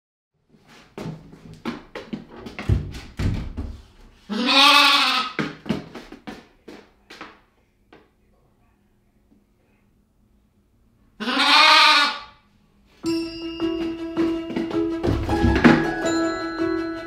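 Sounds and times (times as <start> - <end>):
lamb bleating: 4.3 - 5.4, 11.2 - 12.3.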